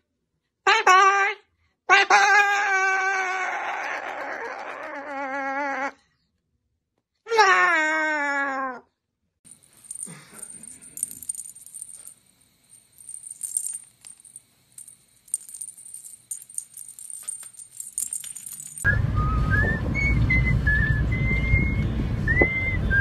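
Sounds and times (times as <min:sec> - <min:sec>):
cockatoo call: 0:00.7 - 0:06.0
ball toy rattling and jingling: 0:09.5 - 0:18.9.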